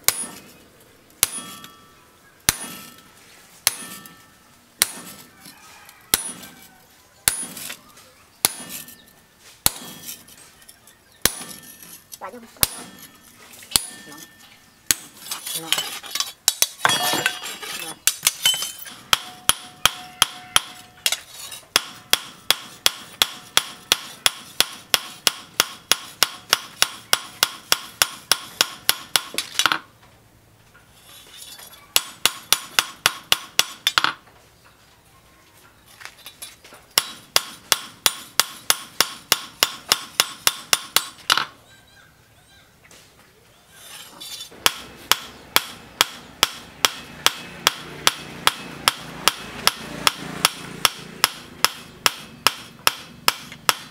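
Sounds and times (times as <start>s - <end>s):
hammer striking steel blade: 0.1s - 0.5s, 1.2s - 5.2s, 8.4s - 10.4s, 11.2s - 12.0s, 12.6s - 29.8s, 44.6s - 53.9s.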